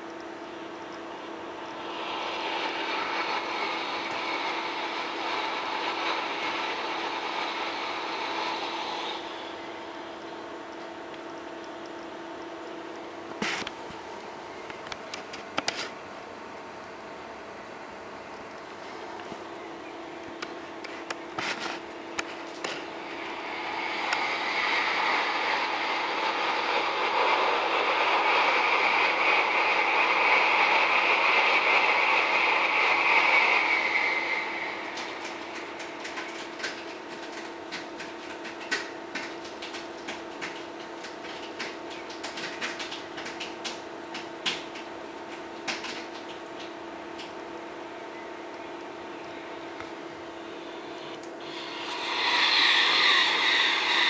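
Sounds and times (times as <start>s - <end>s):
steady hum: 0.0s - 40.6s, 47.1s - 54.0s
passing train rushing: 1.1s - 10.7s, 21.8s - 37.1s, 51.4s - 54.0s.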